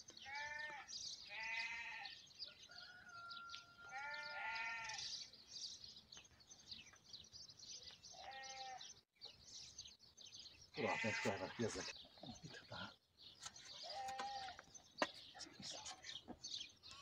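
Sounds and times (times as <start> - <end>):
livestock bleating: 0.2 - 2.2, 3.8 - 5.2, 8.1 - 9.0, 10.8 - 11.9, 13.8 - 14.6.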